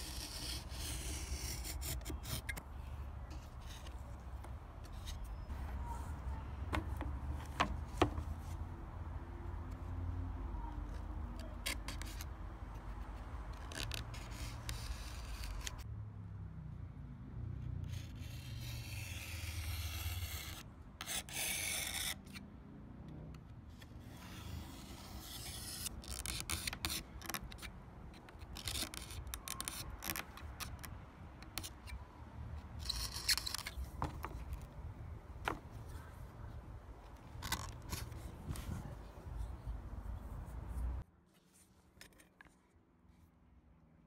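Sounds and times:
knife scraping through leather: 0.0 - 2.6.

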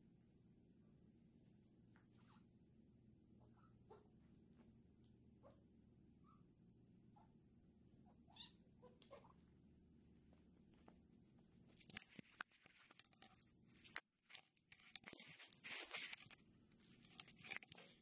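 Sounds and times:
fur scratching on microphone: 15.0 - 16.4.

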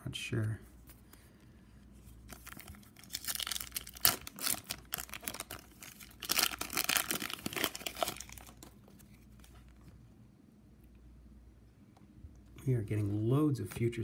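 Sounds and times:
foil wrapper crinkling: 2.2 - 9.5.

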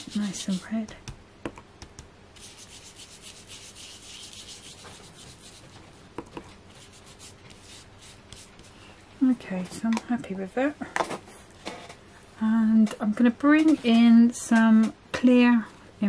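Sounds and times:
foam dauber rubbing on cardstock: 0.0 - 0.8, 2.4 - 6.0, 6.7 - 8.7.

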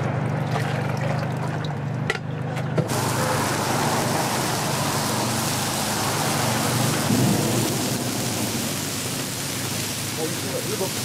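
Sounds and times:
batter sizzling on hot griddle: 2.9 - 11.0.

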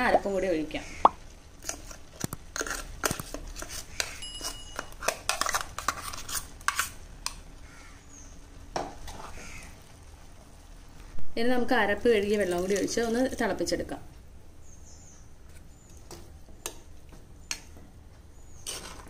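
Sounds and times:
spoon scraping a cooking pot: 1.6 - 7.0, 8.9 - 9.6, 18.6 - 19.0.

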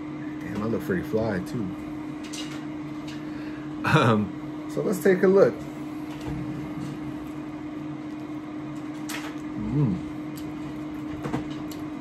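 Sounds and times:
air fryer humming: 0.0 - 12.0
man murmuring while eating: 9.5 - 10.3.

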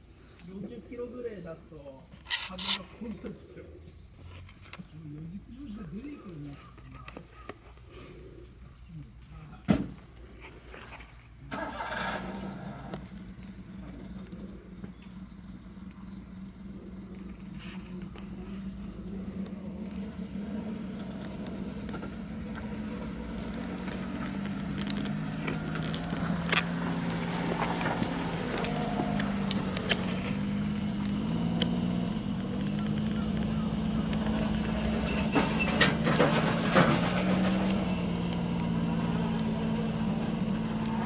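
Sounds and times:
tractor engine running: 11.4 - 41.0
sharp clicks: 23.4 - 34.9.

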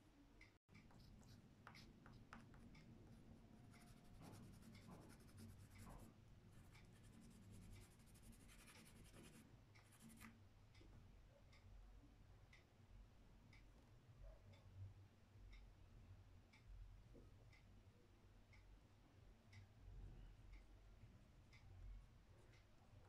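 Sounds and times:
pastel scratching on paper: 3.7 - 10.3.

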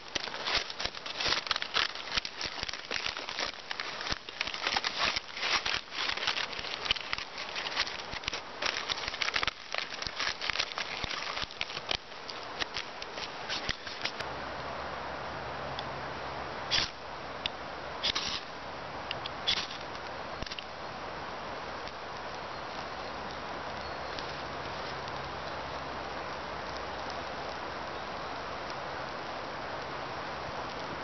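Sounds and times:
aluminium foil crinkling: 0.0 - 14.2.

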